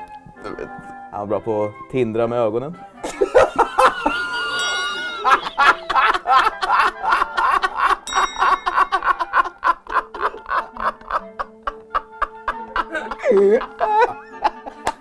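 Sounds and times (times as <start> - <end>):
man laughing heartily: 3.0 - 15.0
bell-like ding: 4.5 - 5.9, 8.1 - 9.3.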